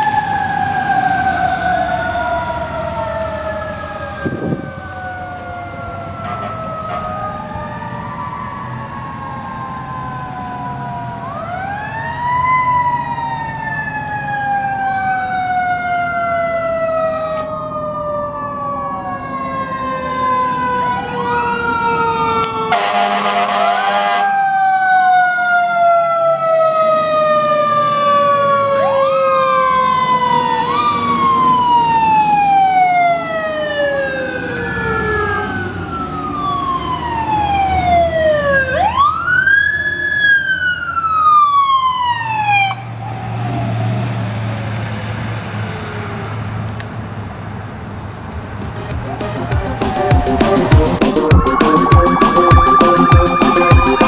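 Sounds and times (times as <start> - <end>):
truck engine rumble: 0.0 - 24.1, 26.5 - 54.0
fire engine sirens wailing: 0.0 - 54.0
horn blast: 22.7 - 24.3, 48.6 - 54.0.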